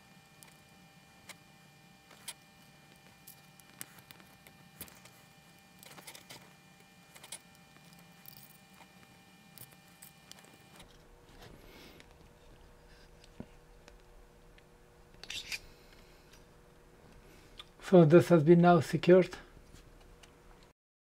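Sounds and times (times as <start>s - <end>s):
small parts clicking and tapping: 2.1s - 11.0s.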